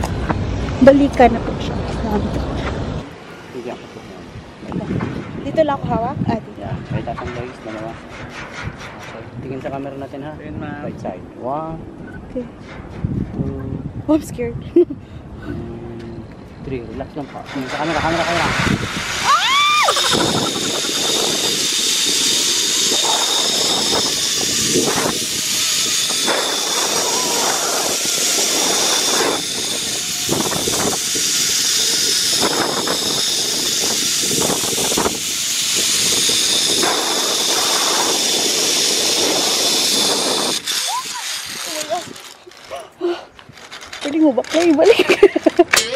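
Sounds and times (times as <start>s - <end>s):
wind rushing on microphone: 0.0s - 42.3s
pulley whining along cable: 17.2s - 45.9s
woman screaming: 19.2s - 20.5s, 26.9s - 27.9s, 40.9s - 41.3s.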